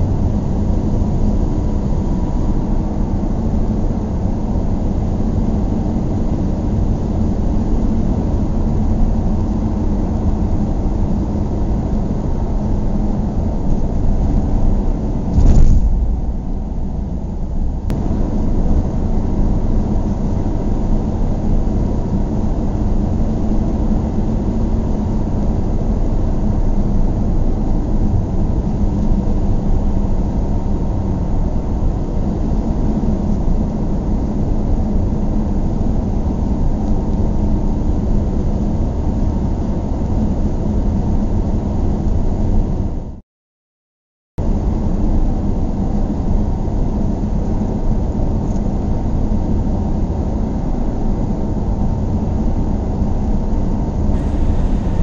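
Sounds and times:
car interior engine and tyre rumble: 0.0s - 38.5s, 52.3s - 55.0s.

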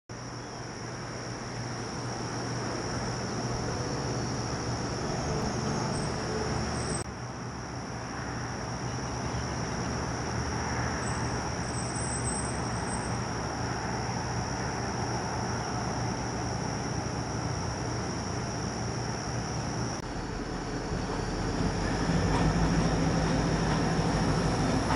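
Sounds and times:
crickets chirring: 0.1s - 24.9s
diesel locomotive engine drone: 0.2s - 24.9s.

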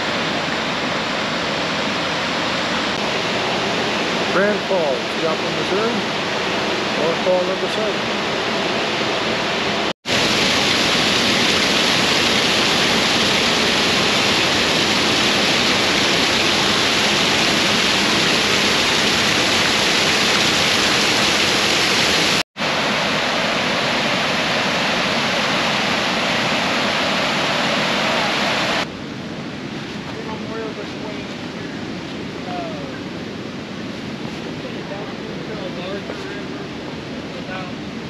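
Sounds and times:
waterfall rushing: 0.0s - 28.9s.

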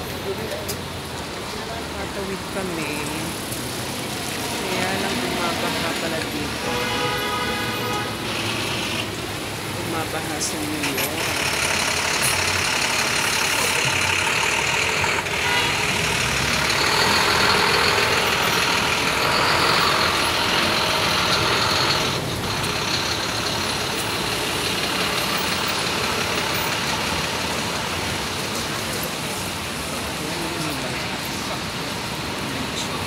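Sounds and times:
city street traffic: 0.0s - 33.0s
heavy vehicle engine running: 7.8s - 33.0s.

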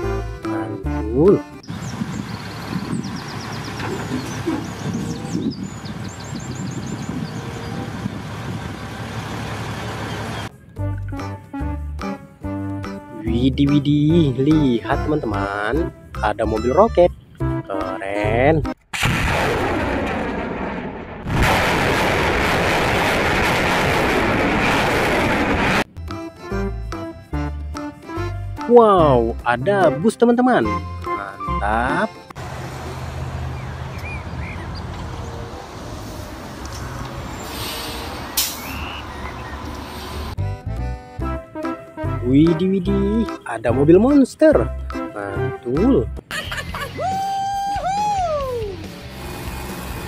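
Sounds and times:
dump truck engine rumbling: 0.0s - 17.7s, 30.7s - 43.2s
birds chirping: 1.5s - 11.2s, 16.4s - 17.9s, 32.7s - 35.8s, 36.7s - 40.3s
rocket motors roaring: 19.0s - 25.9s.

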